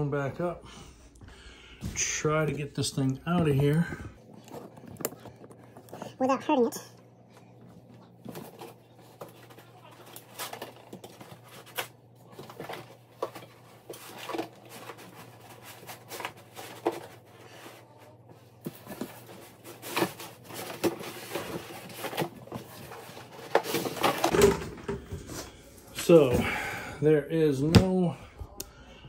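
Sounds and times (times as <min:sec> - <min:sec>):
foam and cardboard rustling: 0:08.1 - 0:26.3.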